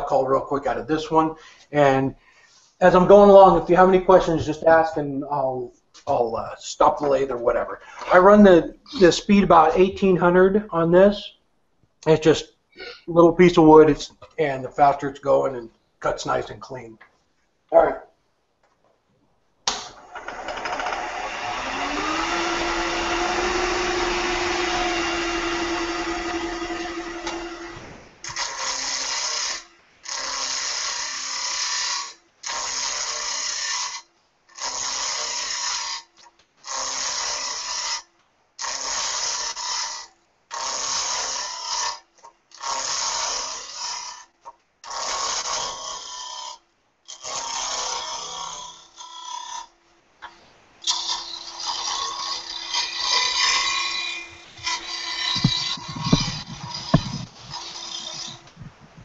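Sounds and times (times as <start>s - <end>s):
wood lathe tool cutting wood: 20.0s - 49.7s, 50.8s - 58.9s
steady hum: 20.8s - 29.8s, 50.0s - 59.0s.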